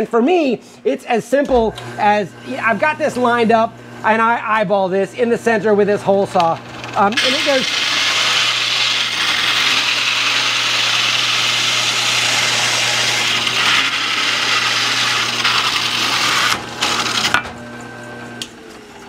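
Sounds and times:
drill press motor hum: 1.5s - 4.1s, 6.4s - 19.0s
hole saw rasping through wood: 7.0s - 17.4s.

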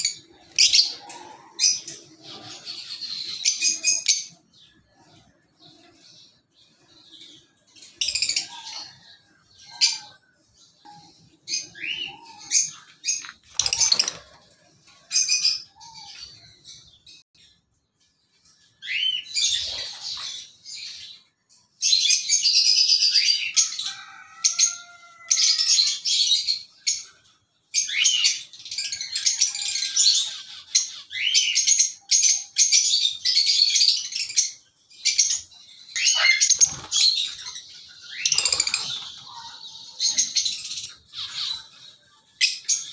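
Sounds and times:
lovebirds chattering: 35.9s - 41.8s.

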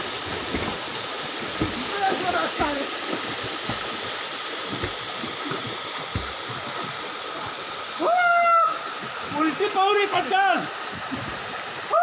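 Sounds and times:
people swimming splashing: 0.0s - 12.0s
rushing water: 0.0s - 12.0s
soft low thumps: 0.1s - 7.1s.

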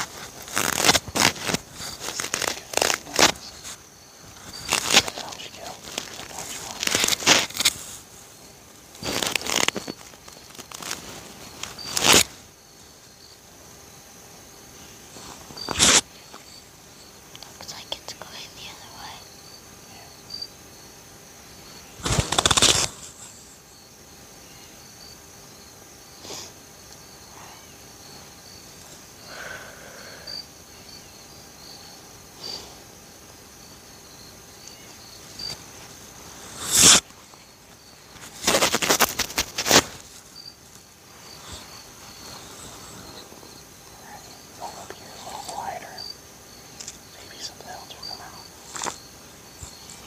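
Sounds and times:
loud rustling near microphone: 0.0s - 12.4s, 22.0s - 23.4s, 35.2s - 43.5s
insects chirping: 0.0s - 50.0s.

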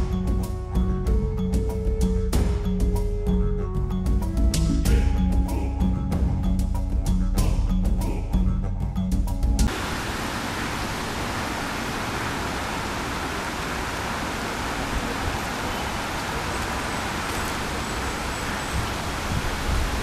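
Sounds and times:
wind on microphone: 14.8s - 20.0s.

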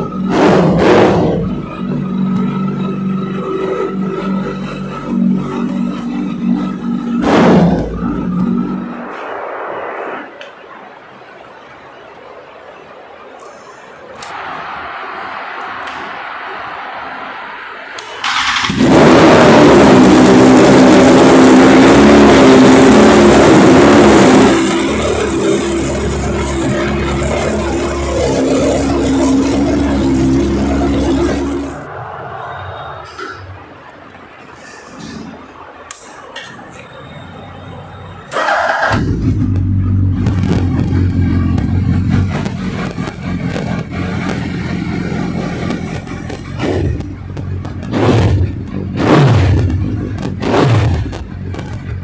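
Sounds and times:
motorcycle engine revving: 0.0s - 9.2s, 18.0s - 31.9s, 38.3s - 52.0s.

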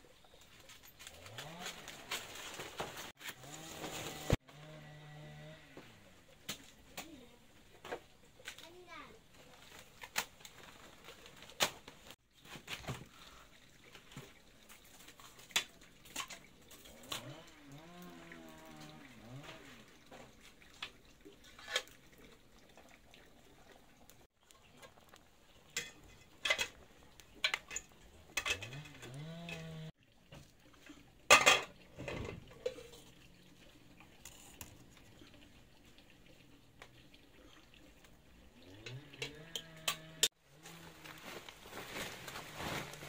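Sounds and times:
pots and dishes clinking: 25.7s - 29.6s, 31.3s - 33.0s.

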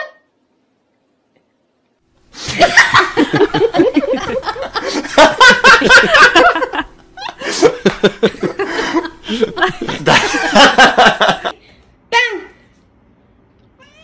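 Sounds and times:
loud laughter in bursts: 2.4s - 11.6s.

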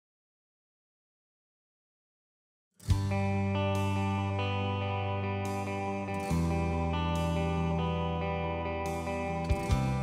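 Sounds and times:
instrumental music with plucked guitar: 2.8s - 10.0s.

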